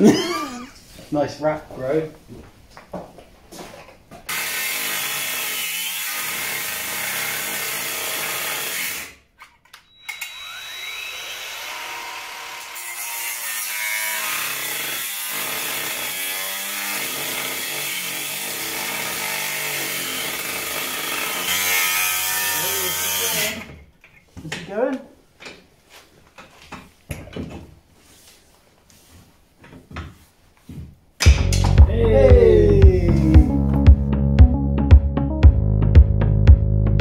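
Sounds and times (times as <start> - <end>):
angle grinder grinding steel: 9.9 - 15.2, 16.2 - 23.8.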